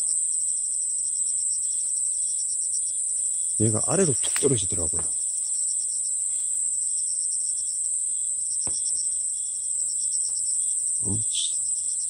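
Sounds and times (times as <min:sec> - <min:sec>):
katydid high-pitched buzz: 0:00.0 - 0:12.0
pulsed insect chirping: 0:00.0 - 0:12.0
grass stems rustling: 0:03.9 - 0:05.6.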